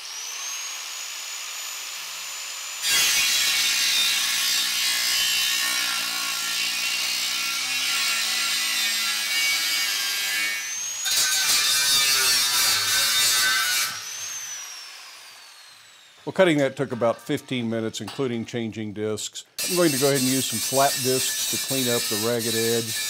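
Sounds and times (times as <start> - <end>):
grinder rising whine: 0.0 - 2.9, 13.9 - 16.3
angle grinder cutting metal: 0.0 - 16.2, 19.6 - 23.0.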